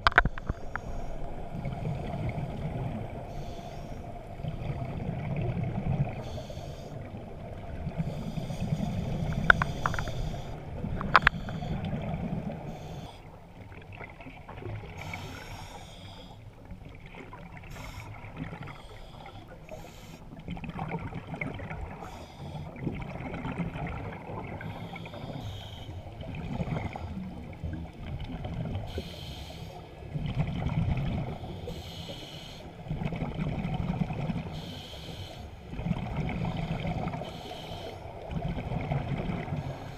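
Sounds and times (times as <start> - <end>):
scuba breathing through regulator: 8.0 - 13.2, 15.0 - 16.4, 17.7 - 20.3, 24.6 - 26.0, 28.9 - 29.8, 31.4 - 32.8, 34.5 - 35.6, 37.1 - 38.1
exhaled bubbles rushing: 22.8 - 24.6, 35.7 - 37.2, 38.3 - 39.7.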